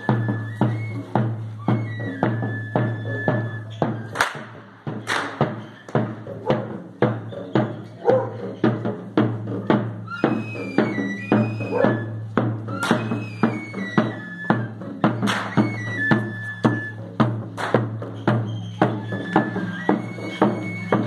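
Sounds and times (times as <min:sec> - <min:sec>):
high flute melody: 0:00.0 - 0:04.6, 0:09.5 - 0:21.0
steady drum beat: 0:00.0 - 0:21.0.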